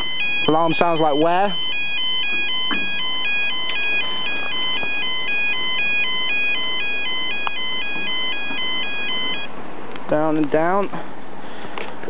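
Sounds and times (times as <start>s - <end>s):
level crossing two-tone alarm: 0.0s - 9.5s.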